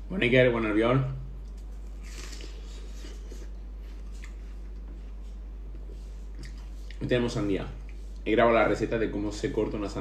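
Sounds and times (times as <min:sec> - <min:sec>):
person chewing watermelon: 0:01.4 - 0:07.0.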